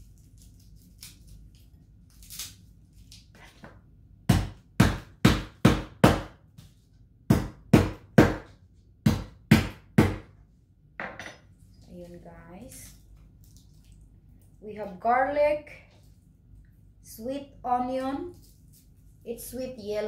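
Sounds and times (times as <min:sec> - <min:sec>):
knife chopping on cutting board: 0:04.3 - 0:06.4, 0:07.3 - 0:10.3.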